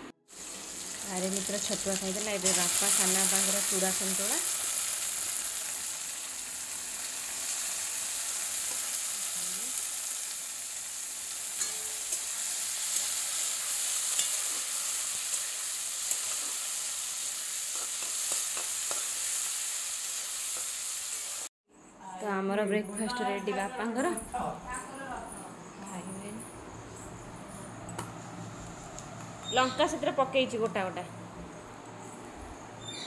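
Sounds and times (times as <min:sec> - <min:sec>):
vegetables sizzling in oil: 0:00.3 - 0:21.5.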